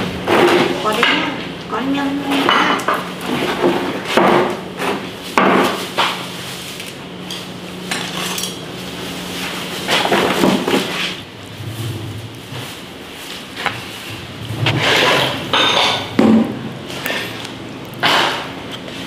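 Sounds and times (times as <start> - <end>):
tableware knocking on plates: 2.3 - 3.1, 15.5 - 16.5.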